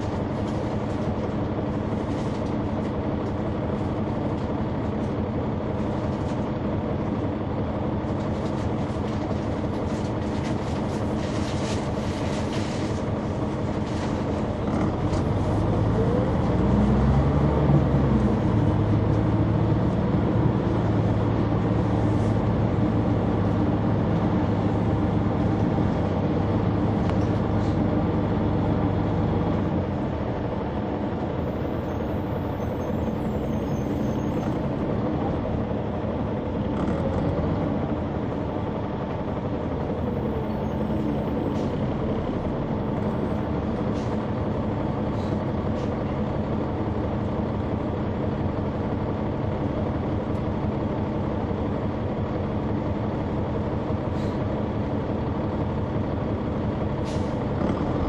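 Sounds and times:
bus diesel engine hum: 0.0s - 58.0s.

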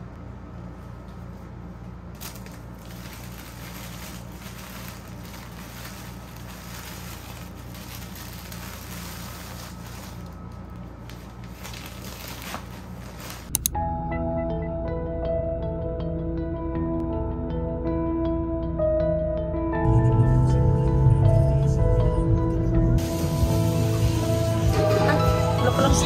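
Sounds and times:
steady low hum: 0.0s - 25.7s
plastic bag and paper rustling: 2.1s - 13.6s
gentle ambient music: 2.3s - 26.0s
sharp clicks: 13.5s - 13.8s.

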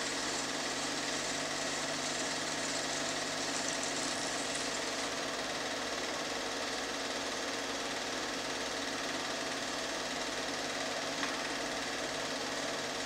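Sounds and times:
film projector whirring: 0.0s - 13.0s.

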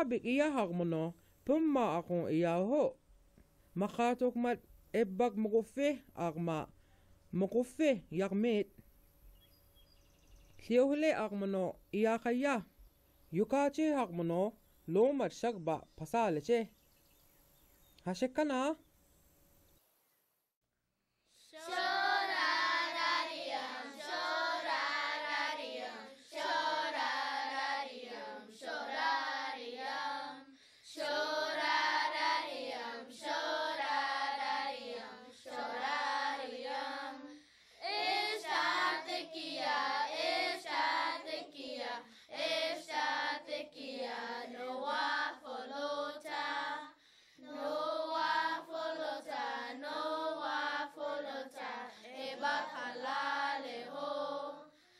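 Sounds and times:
children singing: 21.6s - 46.9s, 47.5s - 54.7s.

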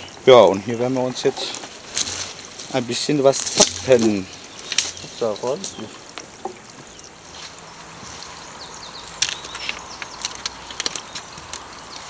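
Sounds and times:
water trickling over rocks: 0.0s - 12.0s
sharp clicks: 9.0s - 12.0s.

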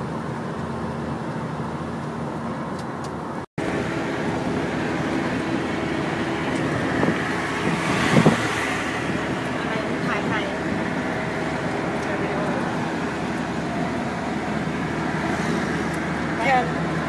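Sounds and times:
car engine hum: 0.0s - 17.0s
road noise: 0.0s - 17.0s.

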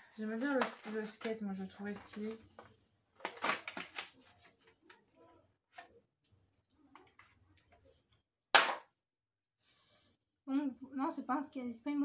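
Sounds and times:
packaging clicks and rustles: 0.3s - 5.0s.

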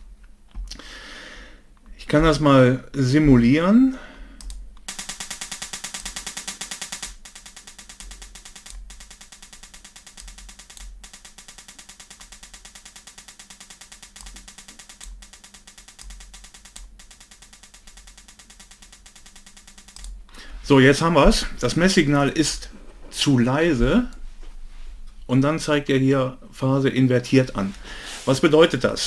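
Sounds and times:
rapid clicks from loudspeaker: 4.4s - 21.8s.

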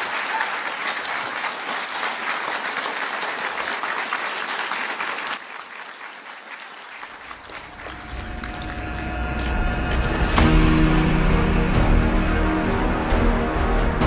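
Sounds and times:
audience applause: 0.0s - 10.4s.

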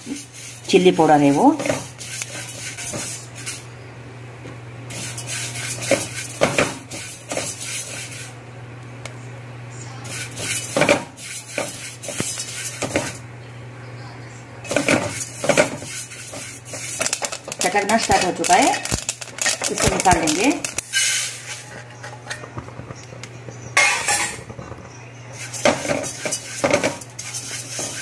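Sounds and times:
seeds scraped in metal pot: 0.0s - 3.6s, 4.9s - 8.3s, 10.1s - 13.2s, 14.7s - 22.5s, 25.3s - 28.0s
steady low hum: 0.0s - 28.0s.

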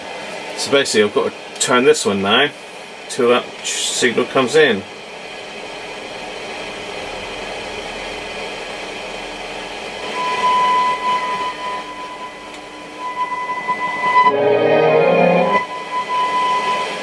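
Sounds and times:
steady test tone: 9.0s - 17.0s.

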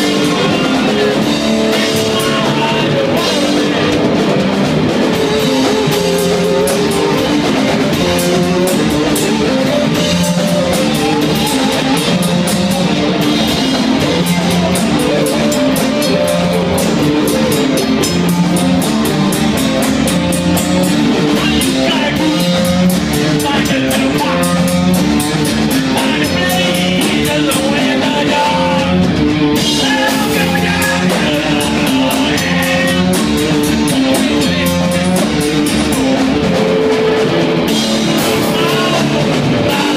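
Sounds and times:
bass guitar riff: 0.0s - 39.9s
distorted electric guitars: 0.0s - 39.9s
drum kit with cymbals: 0.0s - 39.9s.

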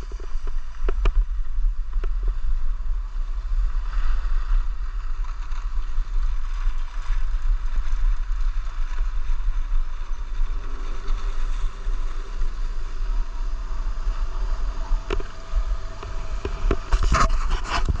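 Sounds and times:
skis sliding over snow: 0.0s - 18.0s
wind buffeting microphone: 0.0s - 18.0s.

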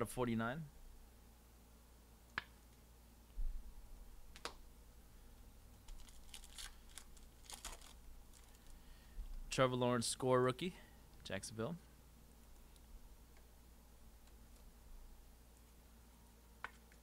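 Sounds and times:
foil pack crinkling and clicking: 5.8s - 8.8s.

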